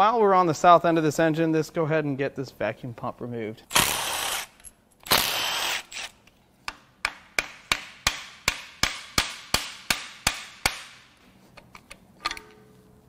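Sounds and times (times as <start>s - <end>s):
cordless power tool burst: 3.7s - 6.1s.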